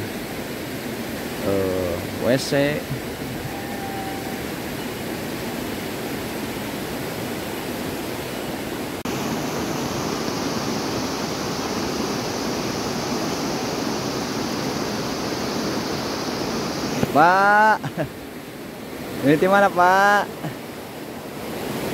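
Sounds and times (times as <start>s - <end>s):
heavy rain: 0.0s - 5.6s
river rushing over rocks: 0.0s - 21.9s.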